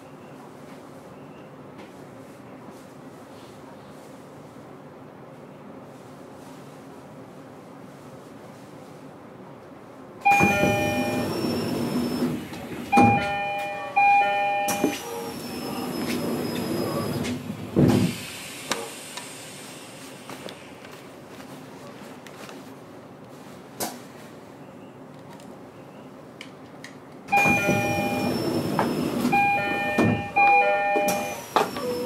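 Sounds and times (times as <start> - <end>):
railway platform background: 0.0 - 32.0
electronic chime tones: 29.4 - 31.4.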